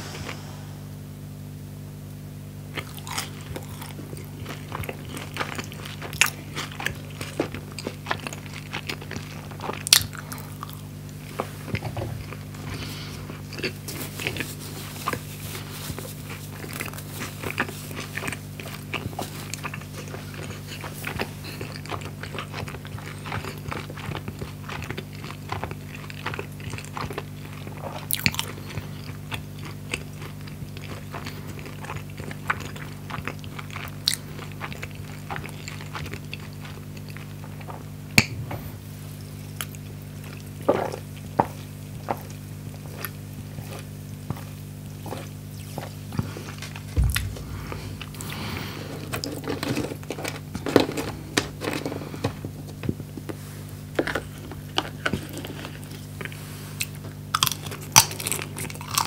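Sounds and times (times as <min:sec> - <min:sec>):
steady low hum: 0:00.0 - 0:59.0
chewing crunchy food: 0:02.7 - 0:59.0.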